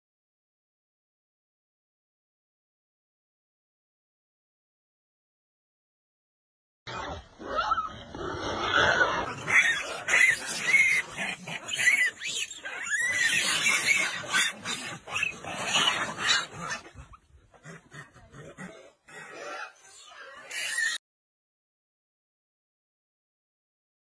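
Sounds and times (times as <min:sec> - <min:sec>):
monkeys calling: 0:08.8 - 0:21.0.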